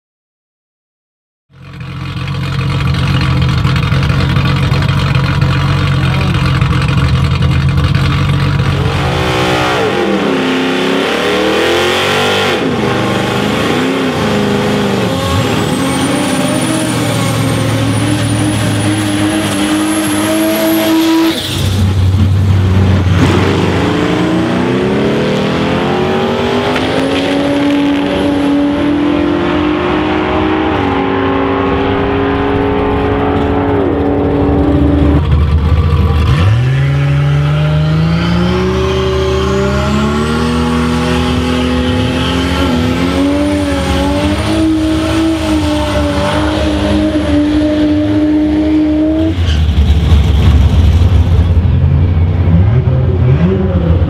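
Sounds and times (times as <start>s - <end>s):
car pulling away: 1.6s - 54.0s
engine revving hard: 8.7s - 21.6s, 22.7s - 49.5s.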